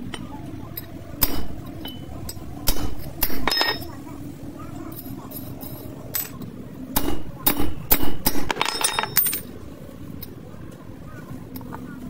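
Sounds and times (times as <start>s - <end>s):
sharp metallic knocks and clinks: 0.0s - 4.0s, 4.9s - 9.6s
steady low hum: 0.0s - 12.0s.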